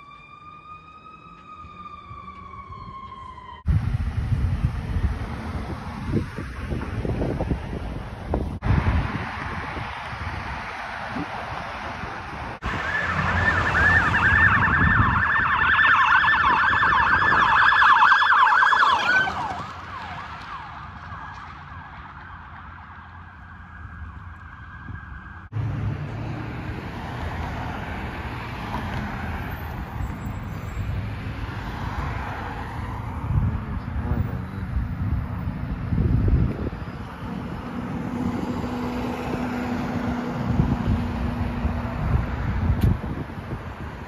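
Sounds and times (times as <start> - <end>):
siren yelping: 0.0 - 3.7, 12.6 - 25.5
steady siren tone: 0.0 - 3.9, 12.6 - 25.6
vehicle passing: 3.7 - 44.0.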